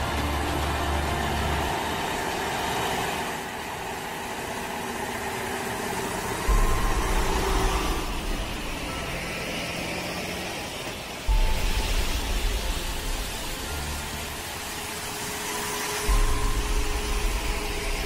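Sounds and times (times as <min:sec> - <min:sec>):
diesel truck engines passing: 0:00.0 - 0:18.0
street traffic noise: 0:00.0 - 0:18.0.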